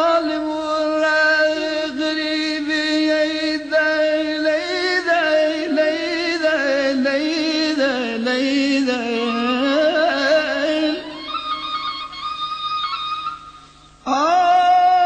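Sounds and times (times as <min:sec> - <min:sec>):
ornamented melody with vibrato: 0:10.8 - 0:14.0.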